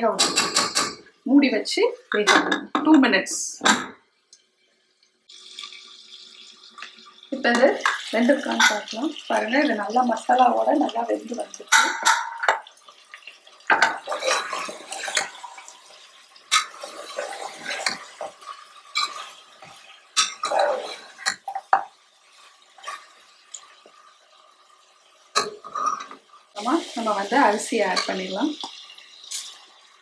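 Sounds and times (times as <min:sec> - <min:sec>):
metal spoon scraping a pot: 0:13.8 - 0:15.4, 0:16.5 - 0:21.8, 0:25.4 - 0:26.2.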